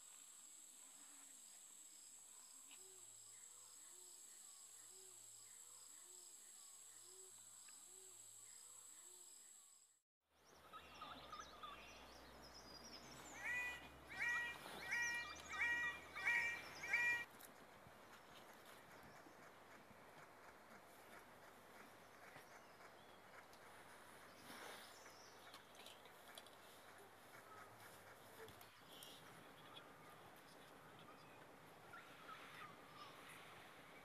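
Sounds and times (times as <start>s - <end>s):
ringing bird calls: 13.3s - 17.3s.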